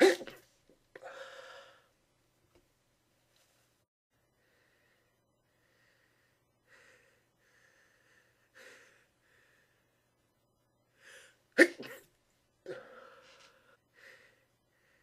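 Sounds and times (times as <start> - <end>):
person sneezing: 0.0 - 0.4, 11.6 - 12.1.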